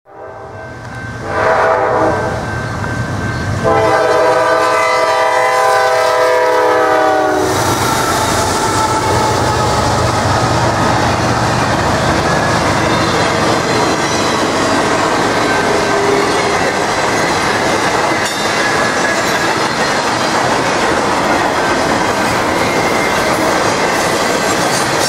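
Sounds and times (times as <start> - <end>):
locomotive air horn: 0.1 - 0.6, 1.2 - 2.5, 3.6 - 11.9
train rumbling past: 0.2 - 25.0.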